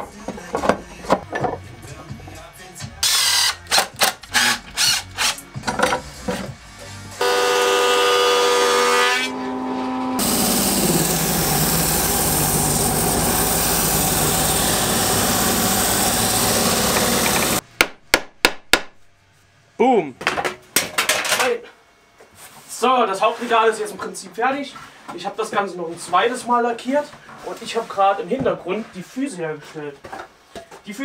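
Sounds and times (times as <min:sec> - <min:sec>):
electric sander motor: 0:07.2 - 0:17.6
wood being sanded: 0:10.2 - 0:17.6
impact driver driving screws: 0:15.6 - 0:17.6.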